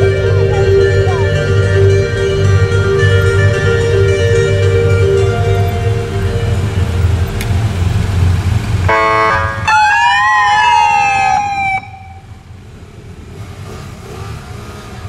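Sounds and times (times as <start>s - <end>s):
motorcycle engines running: 0.0s - 15.0s
electronic police siren: 8.9s - 12.3s.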